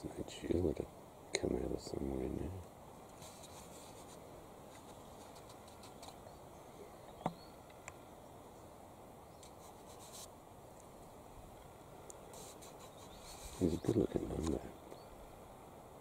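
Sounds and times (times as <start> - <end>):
faint steady hiss: 0.0 - 16.0
soft rustles and ticks: 0.2 - 6.4, 9.3 - 15.1.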